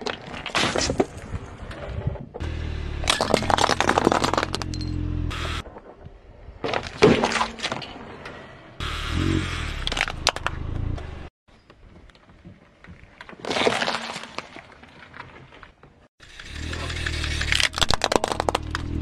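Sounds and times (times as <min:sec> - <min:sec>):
plastic toy cracking: 0:16.6 - 0:18.9.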